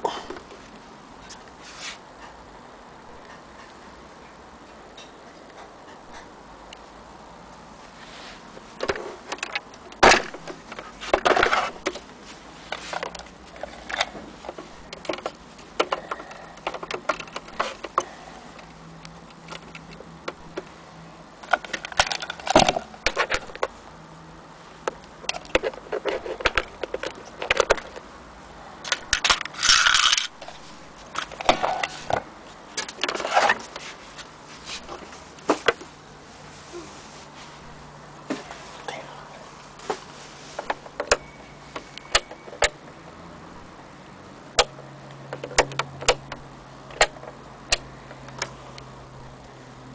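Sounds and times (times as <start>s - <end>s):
scraping rustle: 0.5s - 2.1s, 7.8s - 9.5s, 10.3s - 18.7s, 29.6s - 41.0s.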